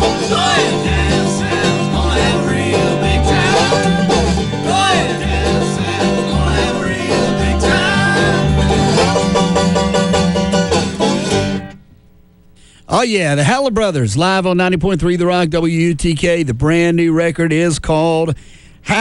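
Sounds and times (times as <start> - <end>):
banjo: 0.0 - 11.8
upright bass: 0.0 - 11.8
acoustic guitar: 0.0 - 13.9.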